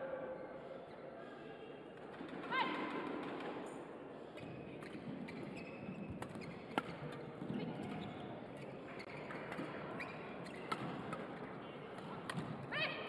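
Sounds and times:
large hall echo: 0.0s - 13.0s
shoes squeaking on court: 4.4s - 12.5s
rackets striking shuttlecock: 9.0s - 12.6s.

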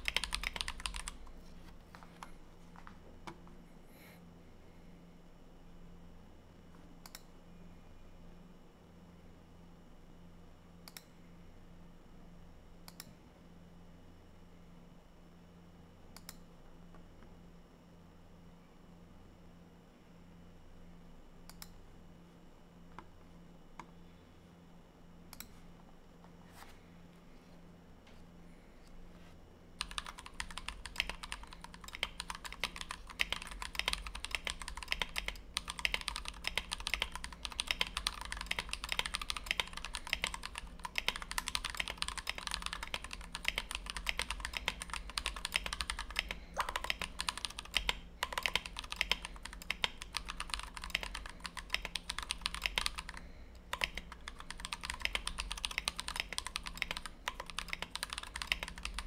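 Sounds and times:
fast typing on mechanical keyboard: 0.0s - 1.3s, 29.8s - 59.0s.

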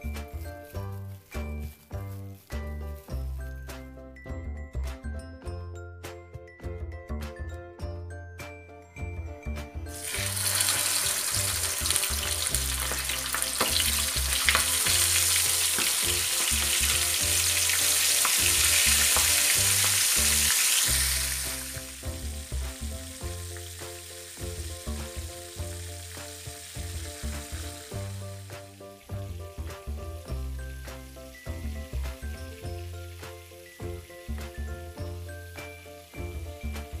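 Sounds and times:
background music with bass line: 0.0s - 37.0s
squid sizzling in hot oil: 9.9s - 29.0s.

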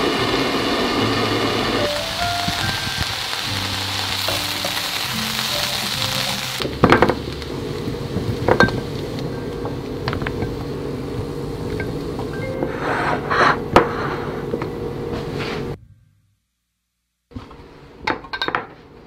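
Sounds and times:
food sizzling in a frying pan: 0.0s - 12.1s
soft background music: 1.1s - 8.0s, 12.3s - 13.3s.

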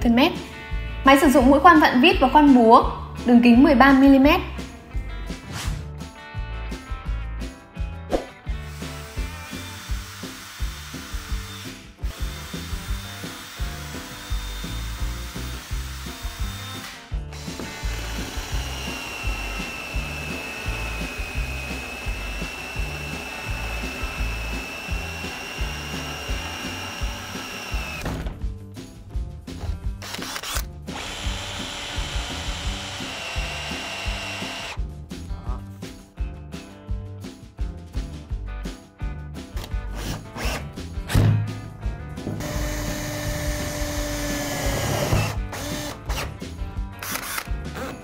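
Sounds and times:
background music with steady beat: 0.0s - 48.0s
drill boring into wood: 8.6s - 28.1s, 30.0s - 34.8s, 42.4s - 46.3s.

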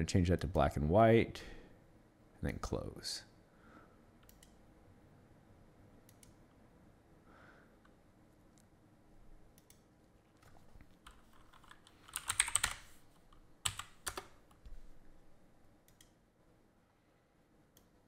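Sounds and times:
typing on keyboard: 10.4s - 12.9s, 13.6s - 14.6s.

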